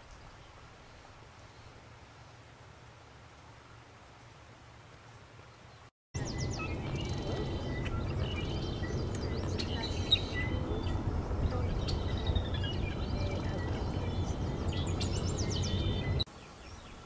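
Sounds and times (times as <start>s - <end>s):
small birds chirping: 5.5s - 17.0s
low outdoor rumble: 6.2s - 16.3s.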